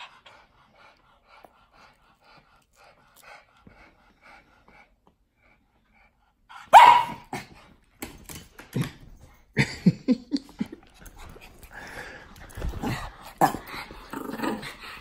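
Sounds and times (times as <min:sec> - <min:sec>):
small dogs barking and yipping: 0:06.6 - 0:07.4.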